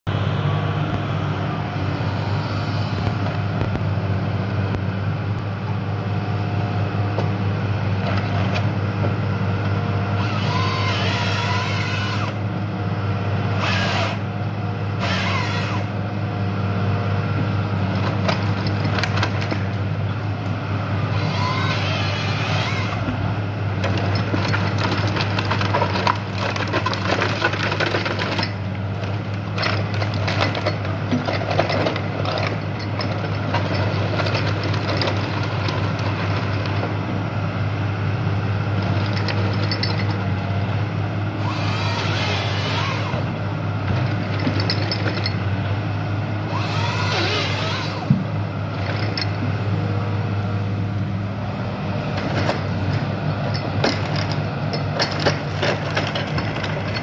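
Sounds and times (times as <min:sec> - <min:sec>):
diesel engine under hydraulic load: 0:00.1 - 0:57.0
wood cracking and splintering: 0:23.9 - 0:36.7.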